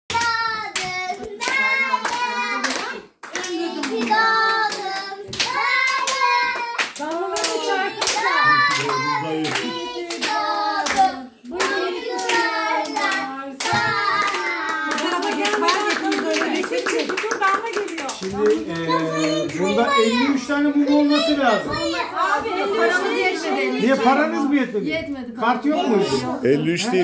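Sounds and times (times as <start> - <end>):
group singing a birthday song: 0.1 - 17.0
people clapping: 0.1 - 20.1.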